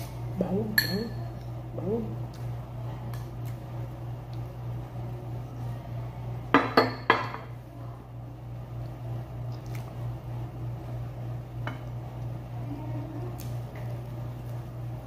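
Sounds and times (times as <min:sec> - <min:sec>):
steady low hum: 0:00.0 - 0:15.0
ceramic bowl clinking on glass: 0:00.8 - 0:01.2.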